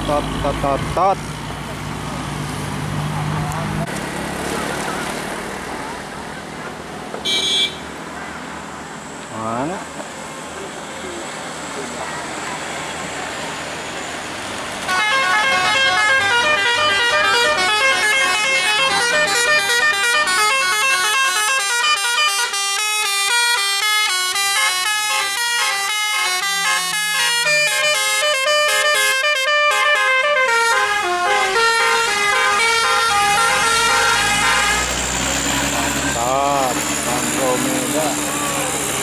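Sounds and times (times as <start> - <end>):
musical air horn playing tune: 7.2 - 7.8, 14.9 - 35.0.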